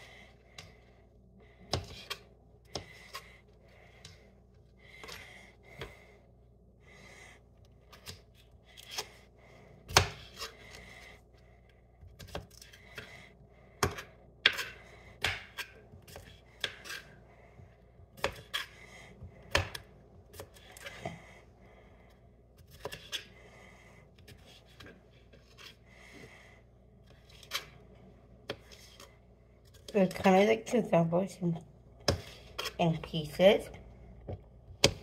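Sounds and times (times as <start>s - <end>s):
knife chopping on cutting board: 13.8s - 17.0s.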